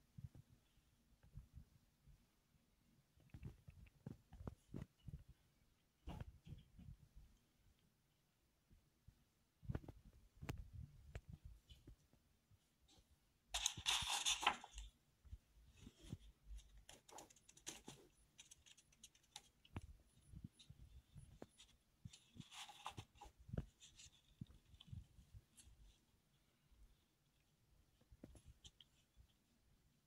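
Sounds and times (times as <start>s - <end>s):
sketchbook paper rustling: 12.9s - 15.0s, 15.7s - 26.5s.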